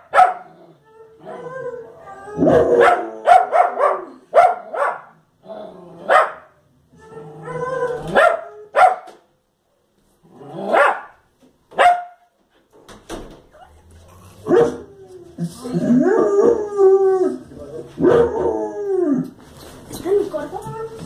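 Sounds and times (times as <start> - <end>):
dog barking sharply: 3.3 - 5.1, 8.2 - 9.1, 10.8 - 11.1, 11.8 - 12.2.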